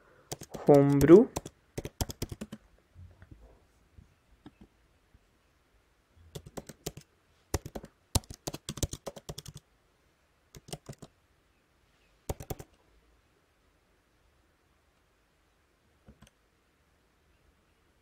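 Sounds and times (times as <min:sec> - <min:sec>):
computer keyboard typing: 0:00.3 - 0:02.6, 0:06.3 - 0:09.6, 0:10.6 - 0:11.1, 0:12.3 - 0:12.8.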